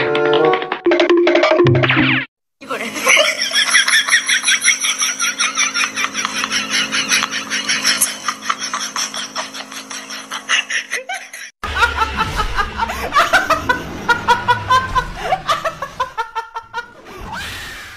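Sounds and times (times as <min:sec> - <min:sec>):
woman laughing loudly: 0:02.6 - 0:17.0.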